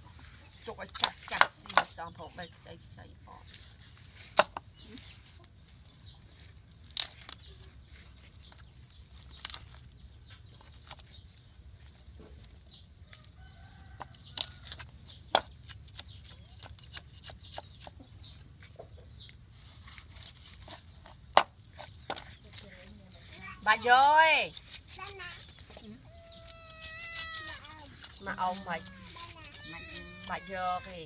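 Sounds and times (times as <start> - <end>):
chickens clucking: 17.8 - 19.5.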